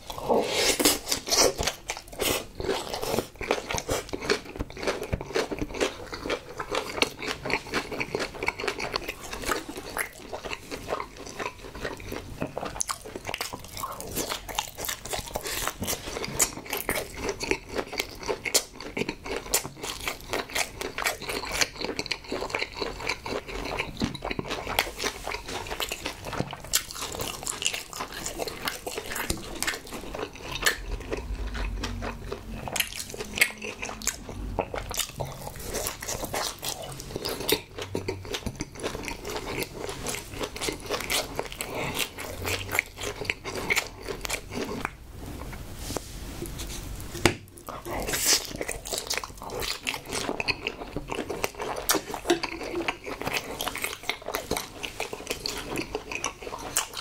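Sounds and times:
wet chewing: 0.0 - 45.0, 46.5 - 57.0.

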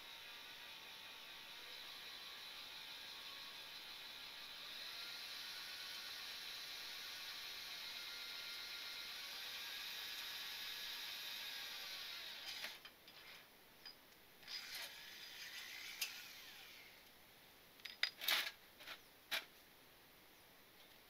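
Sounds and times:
cordless drill whining: 0.1 - 12.9, 14.4 - 17.0
sharp clicks and knocks: 17.8 - 19.5.

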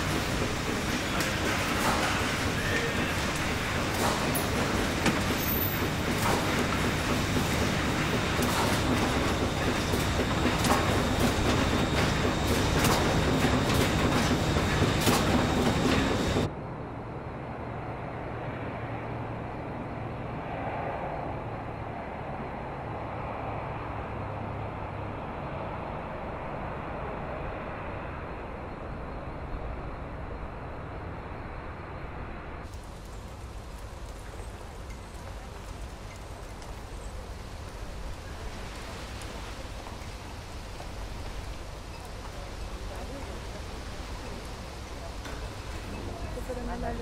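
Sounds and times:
processing machinery din: 0.0 - 16.5.

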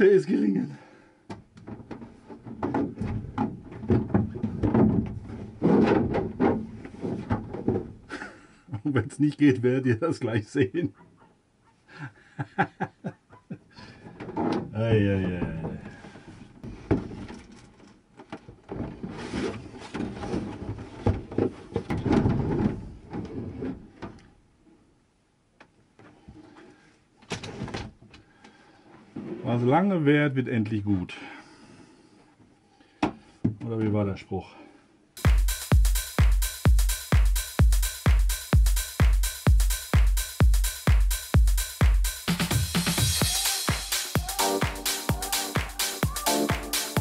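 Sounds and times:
plastic panel scraping: 1.6 - 8.0, 18.7 - 24.0.

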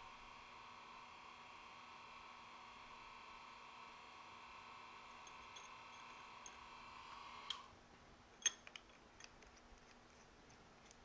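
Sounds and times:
light metallic clicks and taps: 8.4 - 10.0.

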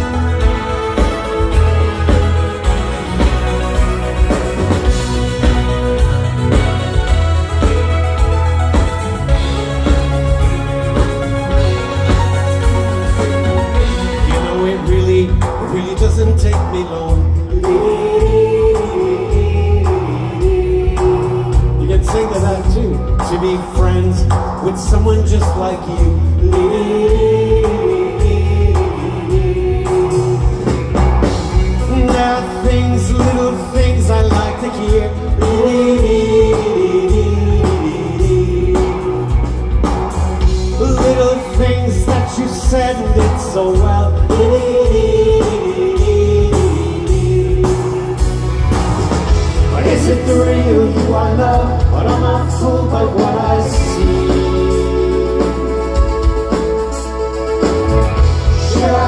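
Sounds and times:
live rock band playing: 0.0 - 59.0
man singing: 13.7 - 30.8, 31.6 - 39.8, 40.4 - 48.5, 49.5 - 59.0.

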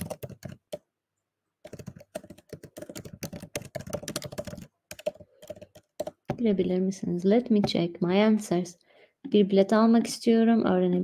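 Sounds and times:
fast typing on keyboard: 0.0 - 0.9, 1.6 - 6.4.

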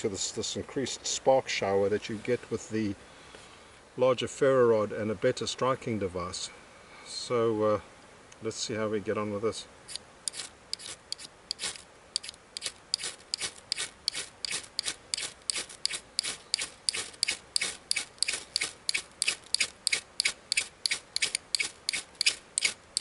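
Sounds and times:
metal bit rasping on ferro rod: 9.9 - 23.0.

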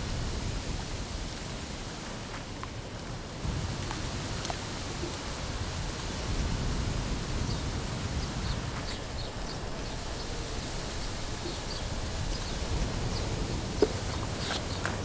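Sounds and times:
wind buffeting the microphone: 0.0 - 15.0
faint bird chirps: 8.4 - 13.3.

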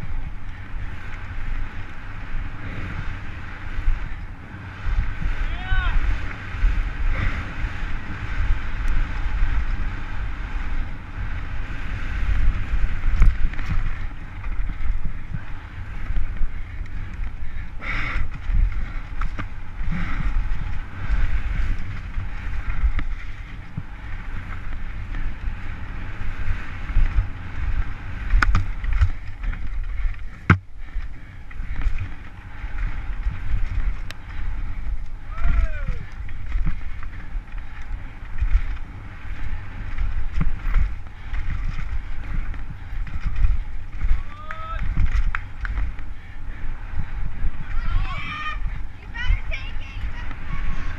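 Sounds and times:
wind rushing over microphone: 0.0 - 50.9
mountain bike clattering over rocks: 18.2 - 23.5, 28.2 - 46.2.

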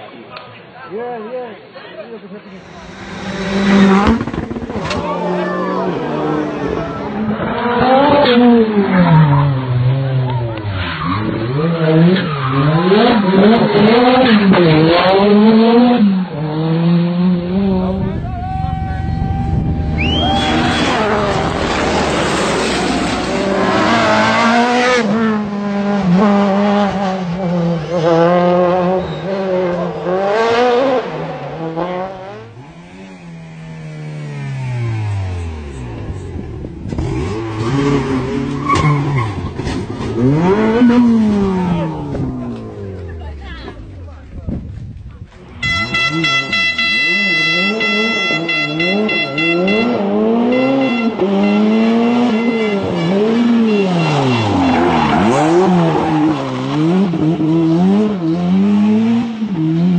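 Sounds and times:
rally car engine revving: 2.5 - 59.9
sharp exhaust pops: 3.6 - 5.1.

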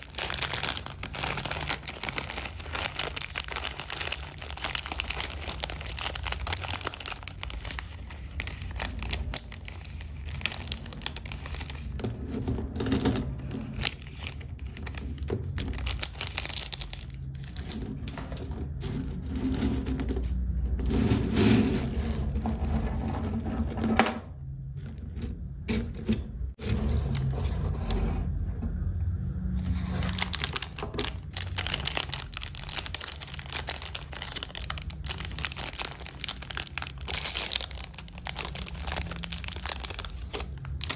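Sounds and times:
snack wrappers crinkling and tearing: 0.0 - 12.1, 13.5 - 18.7, 29.6 - 40.9.

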